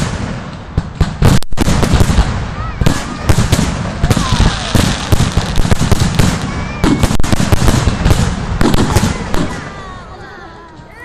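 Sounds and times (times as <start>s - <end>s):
firework shells bursting: 0.0s - 9.7s
faint firework whistles: 2.6s - 9.7s.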